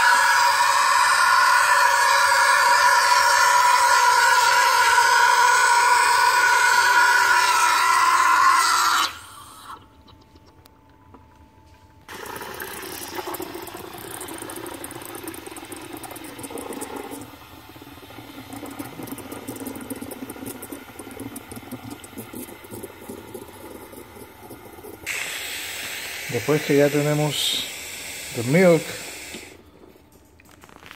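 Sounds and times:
steam wand frothing milk: 0:00.0 - 0:09.8, 0:12.1 - 0:29.7
steam wand hissing: 0:25.0 - 0:29.6.

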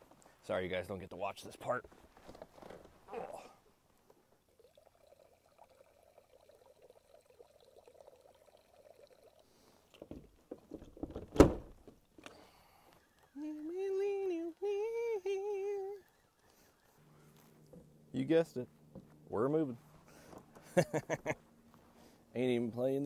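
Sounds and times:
liquid trickling into water: 0:04.4 - 0:10.6
man singing long notes: 0:13.4 - 0:16.0.

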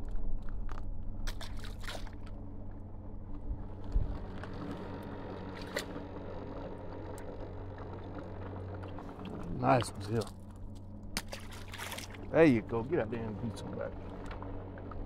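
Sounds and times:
steady low hum: 0:00.0 - 0:15.0
water splashing and trickling: 0:01.3 - 0:02.4, 0:11.2 - 0:12.4.

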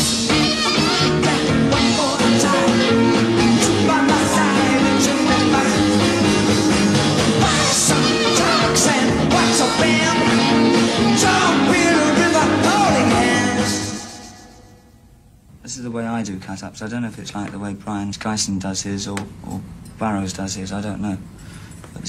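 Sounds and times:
rock band with singing: 0:00.0 - 0:14.9.

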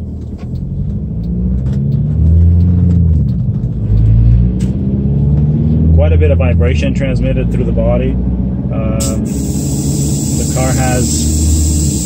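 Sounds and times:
diesel engine drone in cabin: 0:00.0 - 0:12.0.

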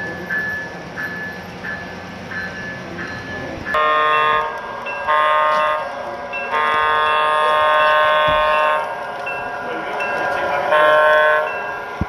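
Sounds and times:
model locomotive bell ringing: 0:00.0 - 0:12.0
multi-note air horn: 0:03.8 - 0:05.8, 0:06.5 - 0:08.8.

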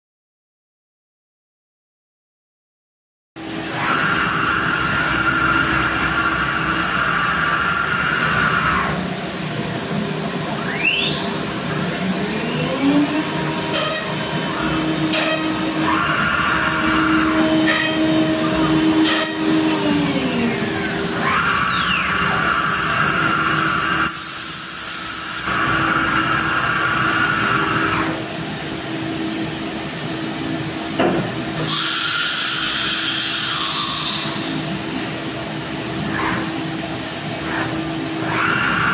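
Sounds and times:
steady machine hum: 0:03.4 - 0:21.4
router spindle whining: 0:10.4 - 0:24.1
hiss: 0:24.1 - 0:25.6, 0:31.6 - 0:35.2.

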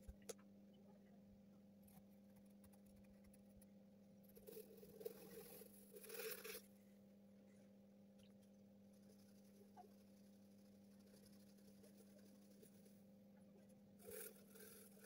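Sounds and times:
faint steady hum: 0:00.0 - 0:15.0
pencil scratching on paper: 0:04.3 - 0:06.6, 0:08.9 - 0:13.1, 0:14.0 - 0:15.0.

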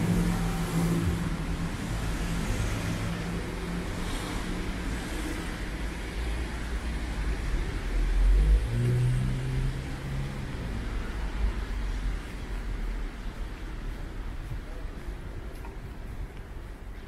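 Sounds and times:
tyres hissing on wet road: 0:00.0 - 0:13.3
car engines humming: 0:00.0 - 0:17.0.

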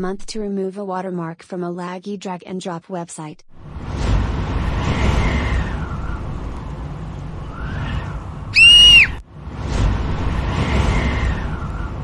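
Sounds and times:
low rumbling wind gusts: 0:03.5 - 0:12.0
loud high-pitched shriek: 0:07.4 - 0:09.2.

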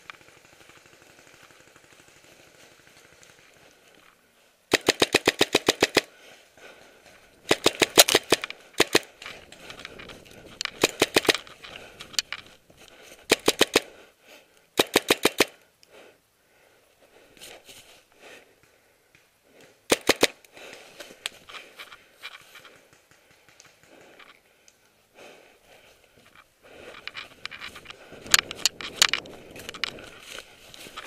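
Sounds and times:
paintball marker firing: 0:04.7 - 0:06.1, 0:07.4 - 0:09.9, 0:10.7 - 0:11.6, 0:13.2 - 0:13.9, 0:14.8 - 0:15.6, 0:19.9 - 0:20.5.

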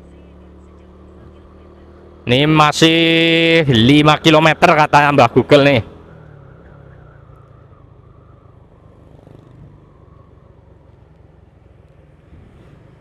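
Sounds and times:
vehicle engine hum and road noise: 0:00.0 - 0:13.0.

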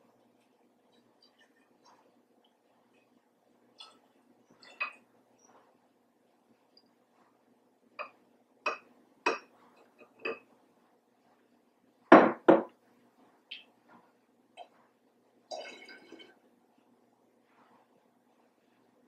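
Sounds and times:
glass cup knocking on table: 0:12.1 - 0:12.7.

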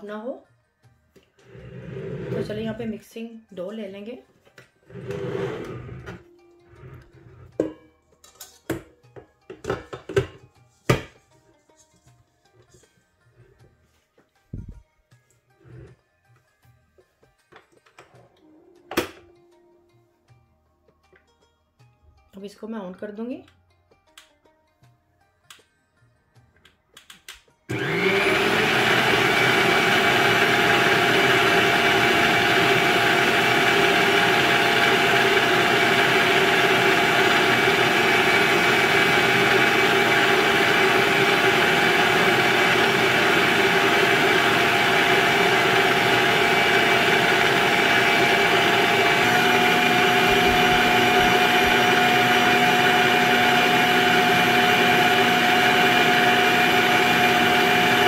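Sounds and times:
stand mixer motor whir: 0:04.9 - 0:06.2, 0:27.7 - 0:58.0.

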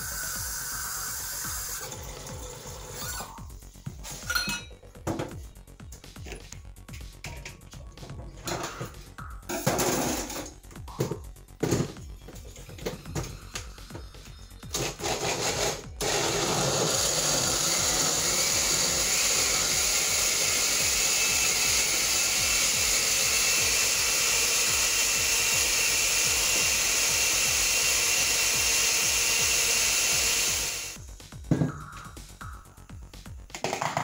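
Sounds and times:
blender running: 0:00.0 - 0:03.4, 0:14.8 - 0:31.0.

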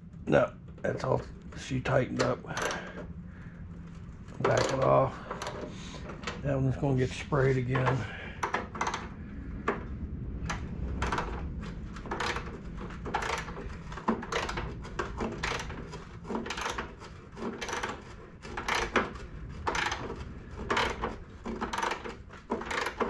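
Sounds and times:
socket ratchet clicking: 0:15.3 - 0:18.0, 0:18.6 - 0:23.0.

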